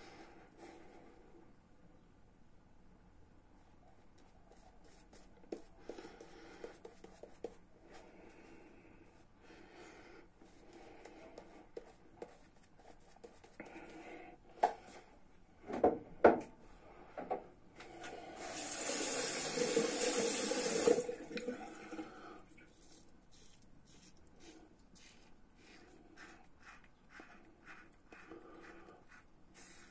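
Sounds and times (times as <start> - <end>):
sink tap running: 18.4 - 21.5.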